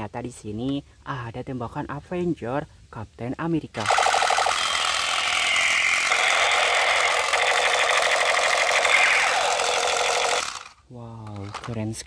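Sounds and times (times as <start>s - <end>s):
toy gun electronic rattling buzz: 3.7s - 12.0s.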